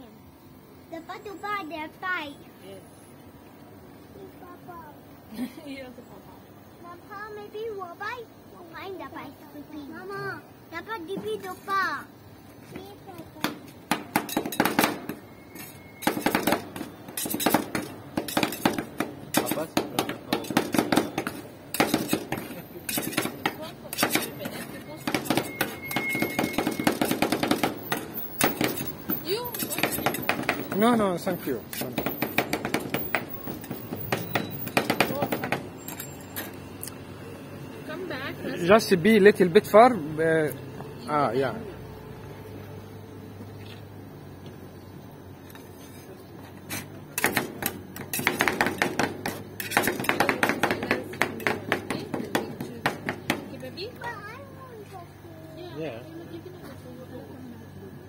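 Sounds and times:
metal spatulas tapping on steel plate: 22.9s - 26.4s
metal spatulas knocking on steel pan: 48.2s - 53.5s.

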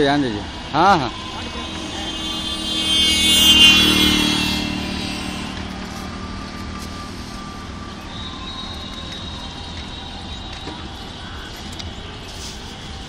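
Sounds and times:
vehicle engine passing: 0.0s - 8.1s.

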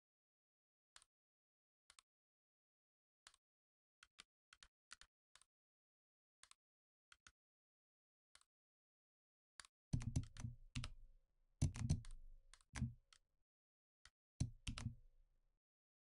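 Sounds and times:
computer keyboard keystrokes: 9.6s - 11.0s, 11.6s - 13.0s, 14.4s - 15.0s.

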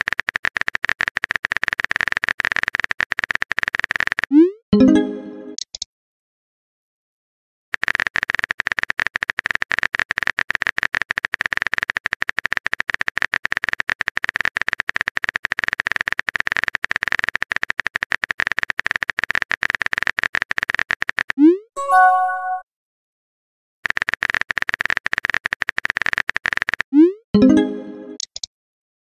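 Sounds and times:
keyboard typing clicks: 0.0s - 5.9s, 23.9s - 28.5s.

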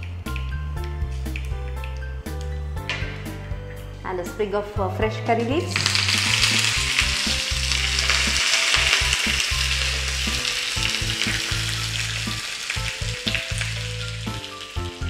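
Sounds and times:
leaves sizzling in hot oil: 5.7s - 15.0s
mustard seeds spluttering: 5.7s - 15.0s.

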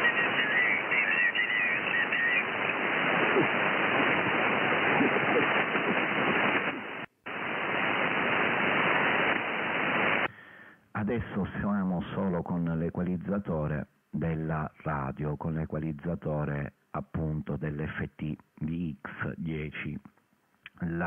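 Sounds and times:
radio receiver hiss: 0.0s - 11.7s.

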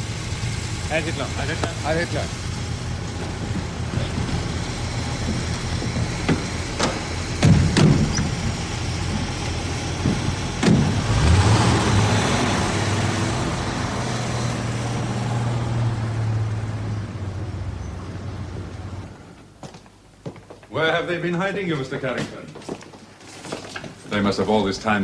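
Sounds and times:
car engine pulling away: 0.0s - 19.4s
car doors slamming: 6.0s - 8.5s, 10.0s - 11.2s.

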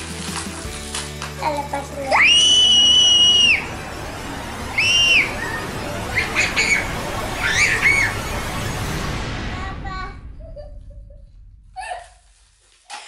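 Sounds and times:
girl shrieking: 2.1s - 3.6s, 11.8s - 12.2s
girl giggling squeals: 11.8s - 12.3s.

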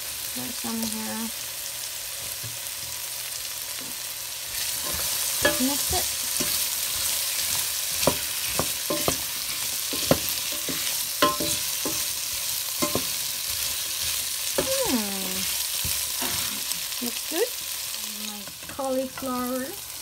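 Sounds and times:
potatoes sizzling in oil: 0.0s - 20.0s
utensil scraping a pan: 4.5s - 14.7s.

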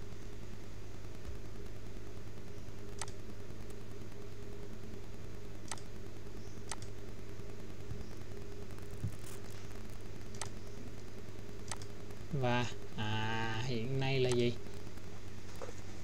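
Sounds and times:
steady low hum: 0.0s - 16.0s
computer mouse clicks: 3.0s - 3.8s, 5.7s - 5.9s, 6.6s - 7.0s, 10.2s - 10.7s, 11.6s - 11.9s.

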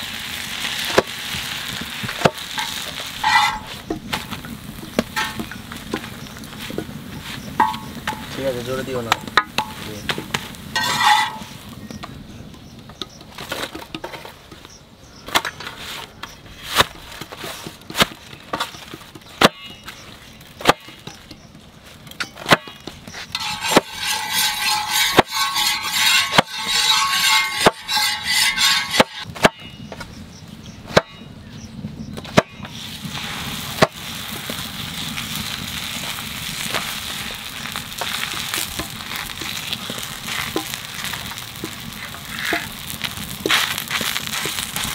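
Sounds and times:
flatbread sizzling on hot pan: 0.0s - 12.3s, 15.8s - 29.3s, 32.4s - 44.9s
crackly crumpling: 32.8s - 44.9s.

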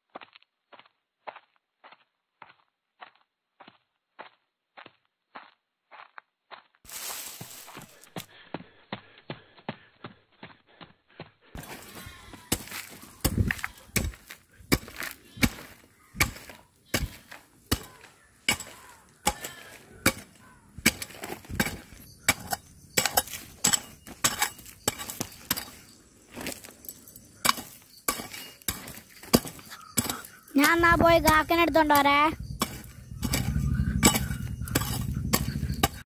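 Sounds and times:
hoe chopping stony soil: 11.5s - 36.0s.

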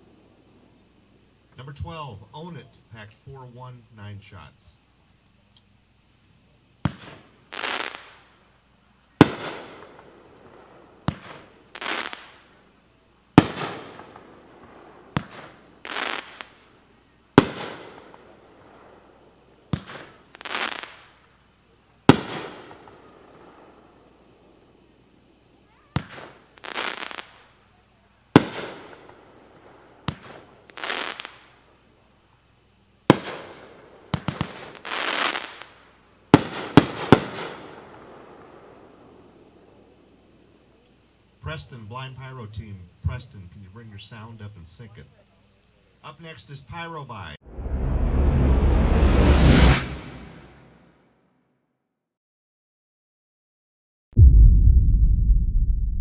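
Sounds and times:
firework hissing crackling burst: 6.3s - 41.5s
firework bangs with echo: 6.8s - 8.2s, 9.2s - 12.4s, 13.4s - 16.7s, 17.4s - 21.1s, 22.1s - 23.8s, 26.0s - 27.3s, 28.4s - 31.6s, 33.1s - 35.7s, 36.3s - 40.0s.

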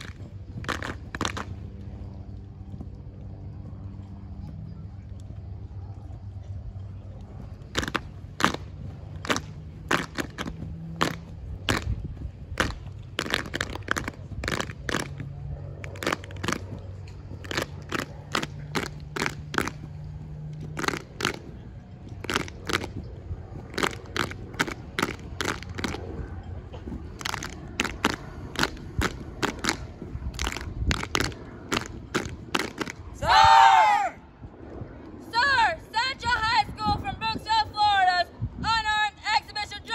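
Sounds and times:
hand slaps and claps: 0.0s - 1.5s, 7.8s - 8.6s, 9.2s - 11.9s, 12.6s - 15.2s, 15.8s - 16.7s, 17.4s - 19.8s, 20.8s - 21.5s, 27.2s - 29.8s, 30.4s - 33.0s
heel stomps: 7.7s - 12.0s.

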